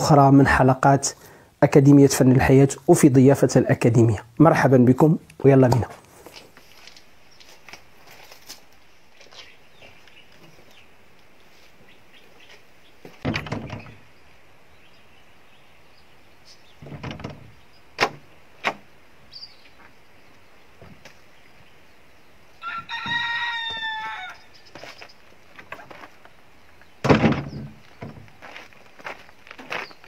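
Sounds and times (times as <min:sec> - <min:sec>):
wooden door clicks and knocks: 0:13.2 - 0:14.0, 0:16.8 - 0:18.8, 0:27.0 - 0:28.3
rooster crowing: 0:22.6 - 0:24.6
loud thump: 0:27.0 - 0:28.3.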